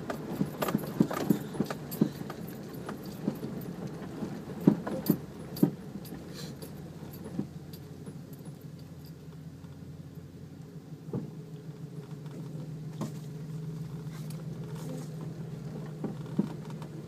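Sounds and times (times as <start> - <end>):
vehicle knocks and rattles: 0.0 - 9.8, 11.1 - 17.0
low engine hum: 0.0 - 17.0.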